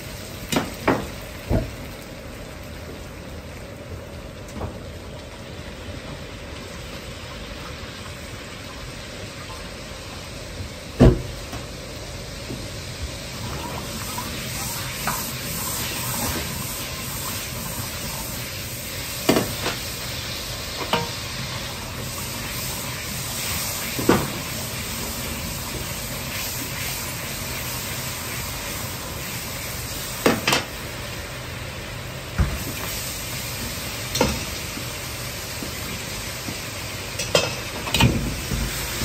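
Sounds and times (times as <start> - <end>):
sauce sizzling in a wok: 0.0 - 39.0.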